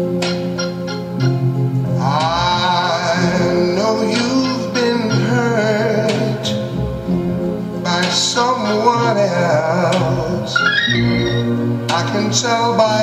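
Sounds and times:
instrumental backing: 0.0s - 13.0s
sung vocal line: 7.8s - 13.0s.

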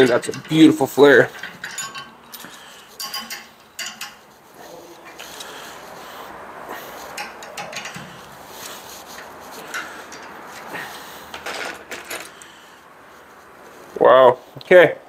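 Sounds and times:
metal tool clicking and scraping: 0.0s - 4.4s, 6.8s - 12.5s.

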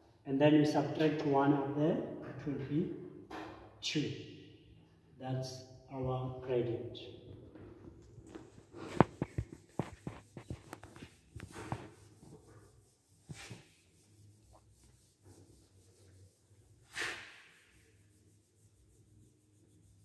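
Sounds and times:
eraser wiping a whiteboard: 8.2s - 20.0s.

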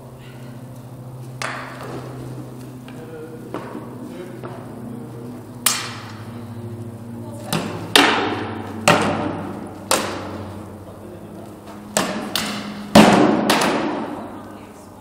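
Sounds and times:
swords striking shields: 11.9s - 14.1s.

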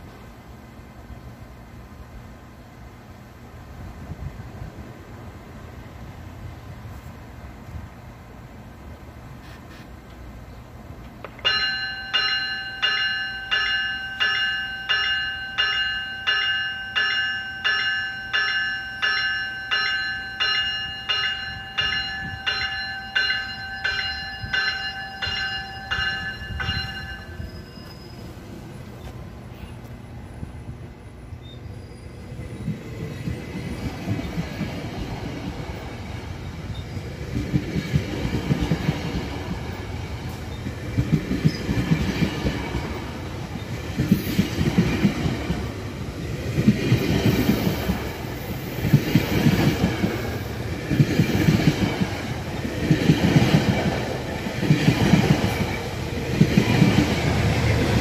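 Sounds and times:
train bell ringing: 11.4s - 28.4s
train wheels clattering over rails: 32.6s - 58.0s.

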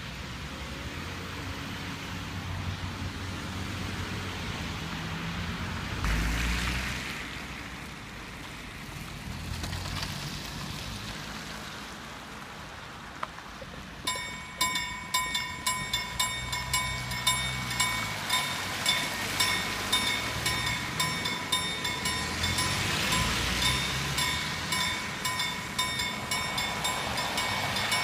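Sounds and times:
tyres hissing on wet road: 0.0s - 14.1s, 15.4s - 28.0s
car engines humming: 0.0s - 28.0s
level crossing bell ringing: 14.1s - 28.0s.

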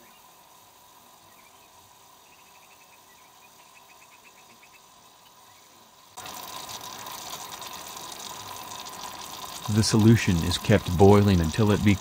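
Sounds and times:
solution bubbling in a beaker: 6.0s - 12.0s.

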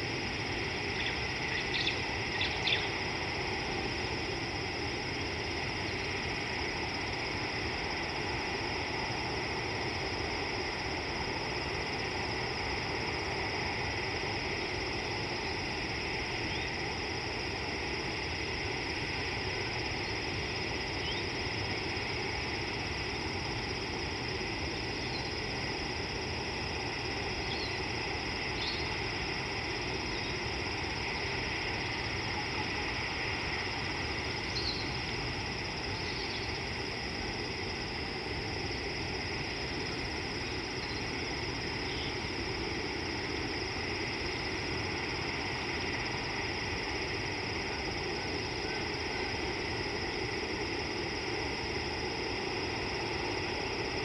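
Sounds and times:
background hiss and hum: 0.0s - 54.0s.

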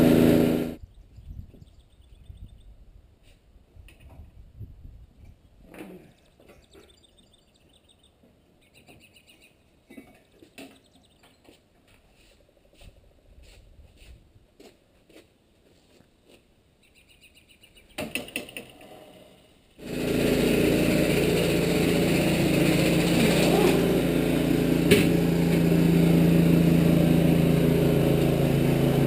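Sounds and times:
engine running loud and steady: 0.0s - 0.8s, 19.8s - 29.0s.

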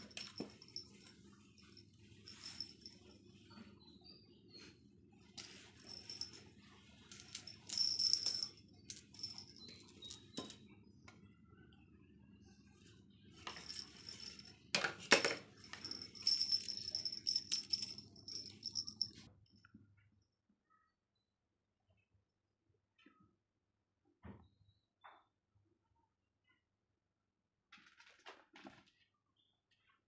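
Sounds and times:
cat toy jingling and rattling: 0.0s - 3.2s, 5.4s - 6.5s, 7.1s - 10.6s, 13.5s - 14.6s, 15.5s - 19.3s.

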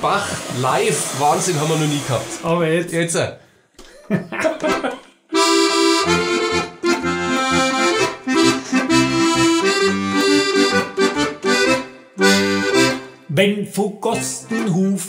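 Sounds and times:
accordion chords: 4.6s - 15.0s
person singing: 13.5s - 15.0s.

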